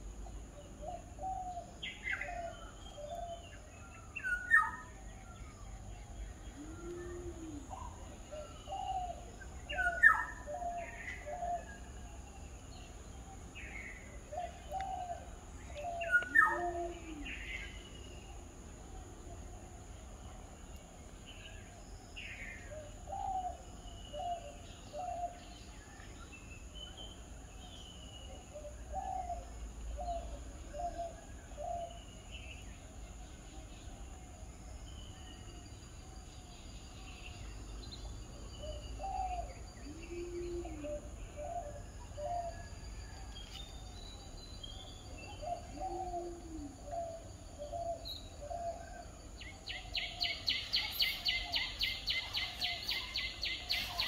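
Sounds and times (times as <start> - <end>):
bird cooing: 0.6 - 3.6, 6.4 - 11.8, 14.3 - 17.8, 22.6 - 25.5, 28.3 - 32.0, 38.6 - 42.7, 45.1 - 54.0
birds calling low notes: 4.3 - 13.0, 36.8 - 42.8.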